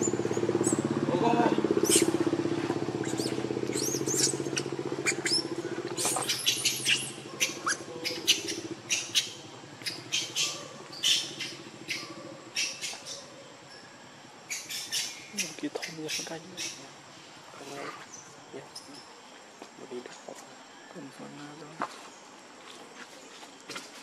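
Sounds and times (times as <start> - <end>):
motor engine throbbing: 0.0 - 13.1
short high squeaks and chirps: 1.8 - 2.2, 3.0 - 13.2.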